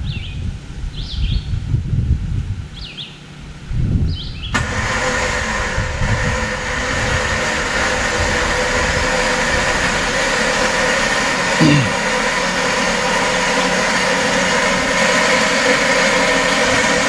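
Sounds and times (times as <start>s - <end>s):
bird chirps: 0.0s - 1.5s, 2.8s - 3.2s
low rumbling: 0.0s - 17.0s
off-road vehicle engine running: 0.0s - 17.0s.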